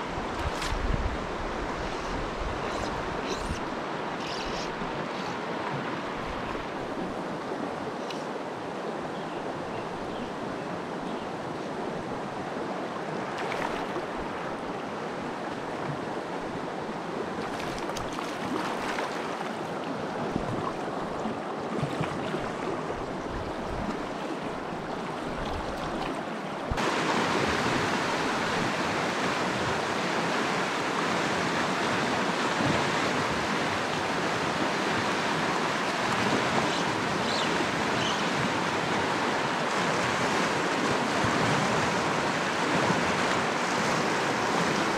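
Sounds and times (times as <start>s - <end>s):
mountain stream rushing over rocks: 24.4s - 44.9s.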